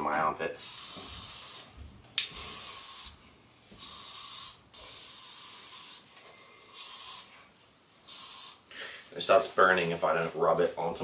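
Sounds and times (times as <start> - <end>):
aerosol can spraying: 0.6 - 3.2, 3.8 - 6.1, 6.7 - 7.3, 8.0 - 8.6.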